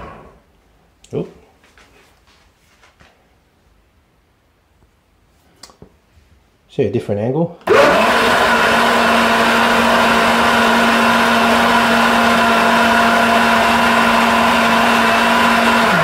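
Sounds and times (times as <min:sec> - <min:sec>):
blender motor running: 0:00.0 - 0:00.4, 0:07.6 - 0:16.0.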